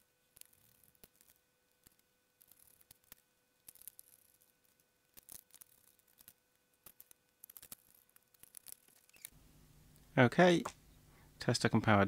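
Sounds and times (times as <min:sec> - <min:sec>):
screwdriver scratchy ticks and clicks: 0:05.2 - 0:09.3.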